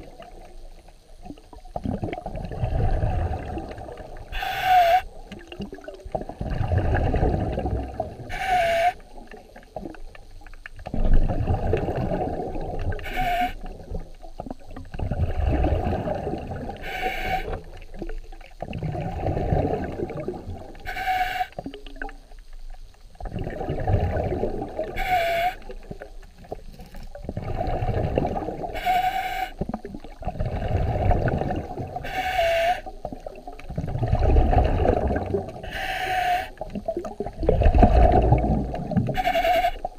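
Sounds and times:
water and bubbles rushing: 0.0 - 39.9
sharp breaths underwater: 4.3 - 5.1, 16.8 - 17.6, 28.6 - 29.6, 32.0 - 32.9, 35.6 - 36.6.

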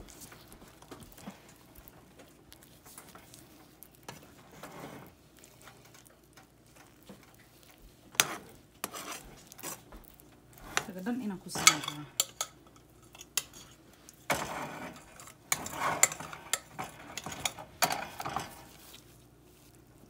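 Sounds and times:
spoon scraping mashed potato: 0.0 - 20.0
spoon clinking against pan: 11.6 - 13.6.

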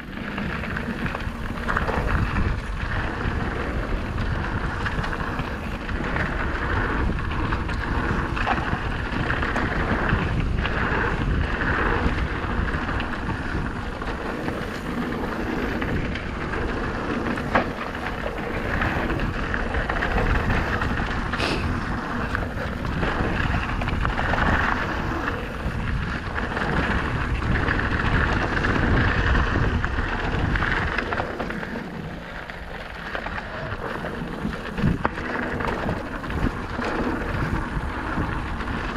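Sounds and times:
bike rattling: 0.0 - 38.9
bike tyres rolling on dirt: 0.0 - 38.9
wind buffeting microphone: 0.0 - 38.9.

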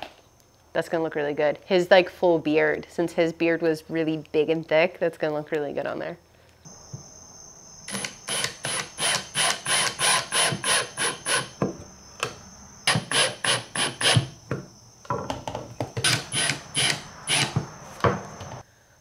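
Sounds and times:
cordless drill driving screws: 7.9 - 11.5, 12.9 - 14.3, 16.0 - 17.6.

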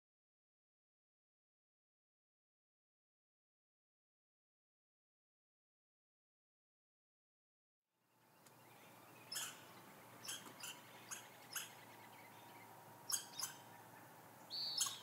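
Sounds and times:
faint steady hum: 8.0 - 15.0
high-pitched bird calls: 8.4 - 15.0.

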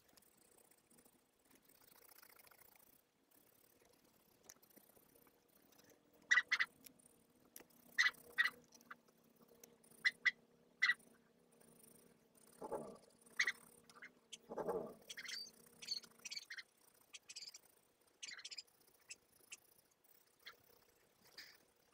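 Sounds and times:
marker squeaking on paper: 13.4 - 16.6, 17.2 - 17.6.

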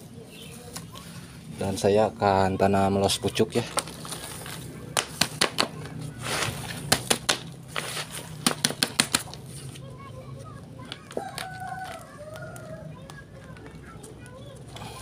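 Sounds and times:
soil rustling: 3.2 - 9.9
hand slapping plastic pot: 4.9 - 6.0, 8.4 - 9.4.

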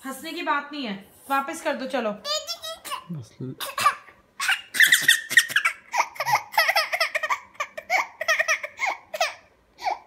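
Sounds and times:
toddler laughing: 3.7 - 10.0.

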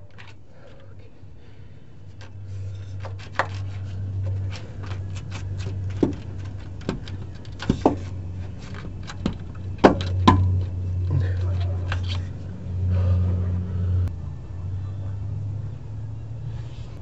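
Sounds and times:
steady low hum: 0.0 - 17.0
sharp metal knocks: 9.0 - 10.8.

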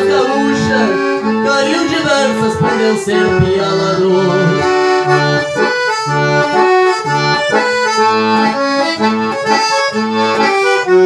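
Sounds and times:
piano accordion melody: 0.0 - 11.0.

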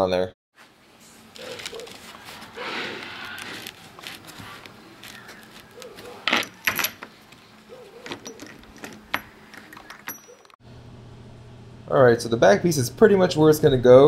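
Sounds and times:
metallic clicks and knocks: 8.0 - 10.6.

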